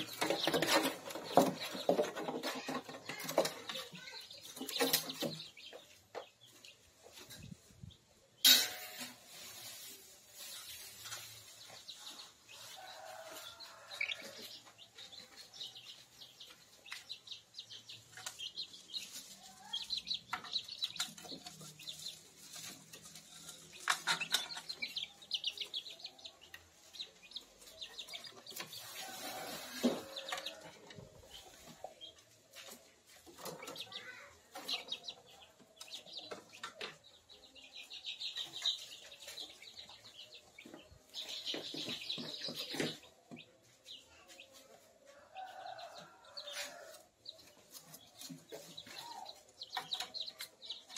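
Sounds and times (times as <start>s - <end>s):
chicks peeping: 0.0s - 8.5s, 9.2s - 50.9s
wing flutters and scuffling: 9.0s - 14.8s, 27.6s - 31.9s.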